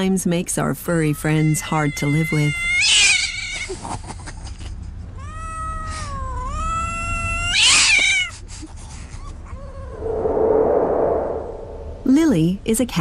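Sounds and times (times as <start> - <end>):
cat harsh cry: 1.2 - 3.7, 5.2 - 8.3.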